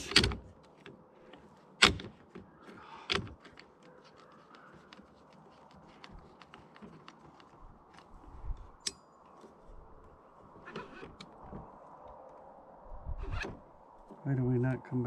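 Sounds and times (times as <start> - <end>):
air rifle charging handle clicks: 0.0 - 1.0, 1.8 - 3.9
faint handling ticks: 2.4 - 8.4.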